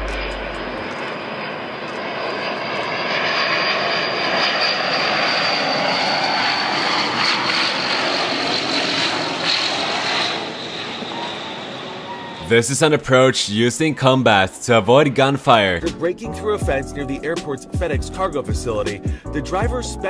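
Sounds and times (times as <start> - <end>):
turboprop plane flying low: 0.0 - 12.6.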